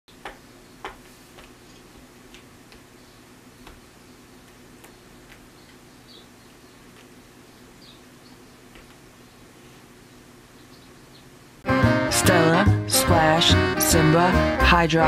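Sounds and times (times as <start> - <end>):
faint steady hum: 0.1 - 11.6.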